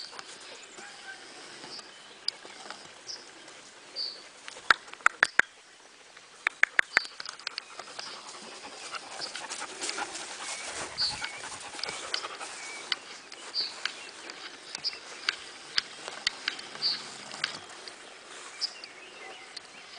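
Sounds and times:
dog panting: 7.3s - 13.1s.

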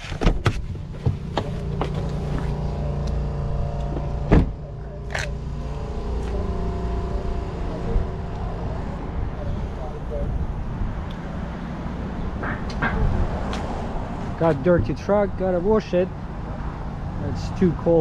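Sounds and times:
car door shutting: 0.0s - 2.6s, 3.8s - 5.3s
car engine idling: 0.0s - 18.0s.

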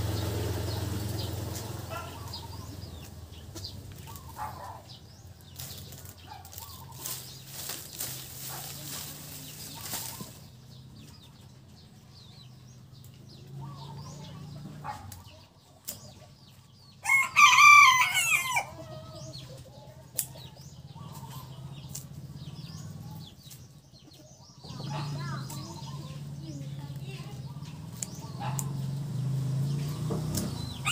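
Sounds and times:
rooster crowing: 17.0s - 19.0s.

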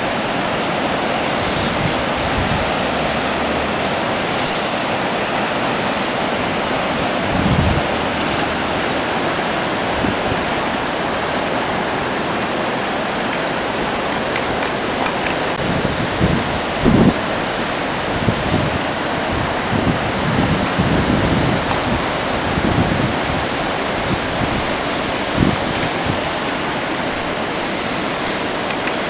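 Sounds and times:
river water rushing through rapids: 0.0s - 29.0s.

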